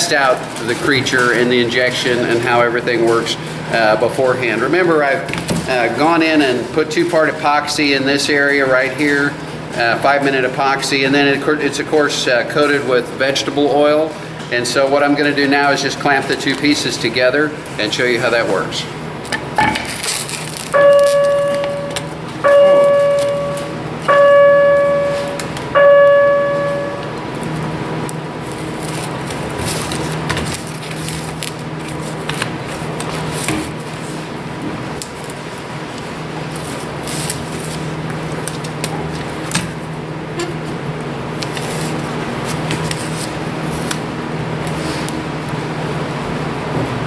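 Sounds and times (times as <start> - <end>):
steady hum: 0.0 - 46.8
ringing bell-like chimes: 20.8 - 27.2.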